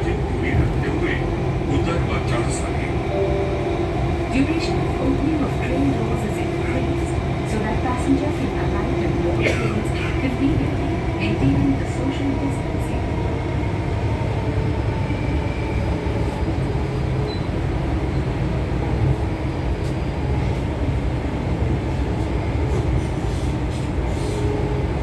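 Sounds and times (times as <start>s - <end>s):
train wheels rumbling on rail: 0.0s - 3.2s, 4.0s - 25.0s.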